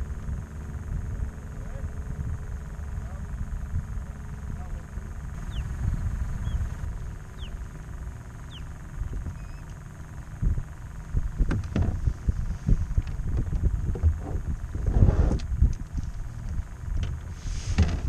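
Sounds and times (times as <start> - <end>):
wind buffeting microphone: 5.2 - 9.6, 10.3 - 18.0
short falling bird calls: 5.4 - 5.8
gear knocking against kayak: 11.4 - 12.2.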